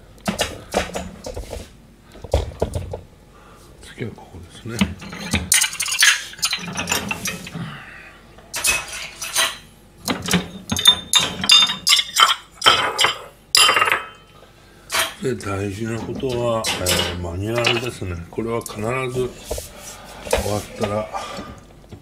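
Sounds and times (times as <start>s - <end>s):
dishes clinking and clattering: 4.8s - 7.6s, 8.5s - 15.2s, 16.1s - 18.0s.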